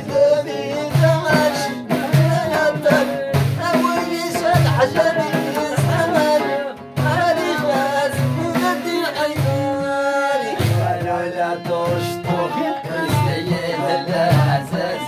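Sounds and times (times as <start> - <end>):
drum beat: 0.0 - 15.0
person singing: 0.0 - 15.0
violin melody: 10.4 - 15.0.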